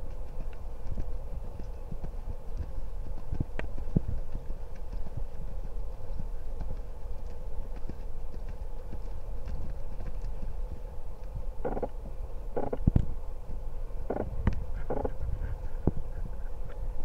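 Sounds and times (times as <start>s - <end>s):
hoofbeats on sand: 0.0s - 12.0s
steady low rumble: 0.0s - 17.0s.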